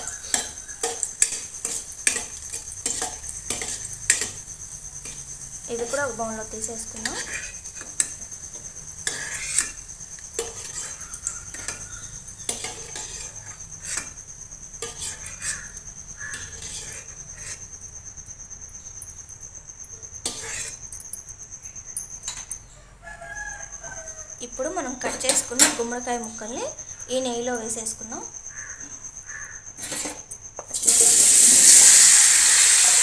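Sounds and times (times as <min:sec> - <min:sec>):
spoon scraping and clinking on pan: 0:00.0 - 0:08.3, 0:09.0 - 0:14.2, 0:14.8 - 0:17.7, 0:20.1 - 0:21.2, 0:22.0 - 0:22.6.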